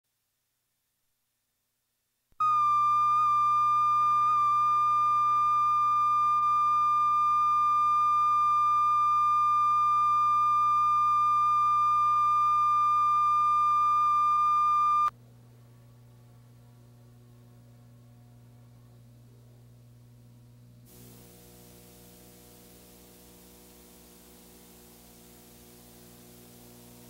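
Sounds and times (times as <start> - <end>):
faint low hum: 2.3 - 27.0
steady test tone: 2.4 - 15.1.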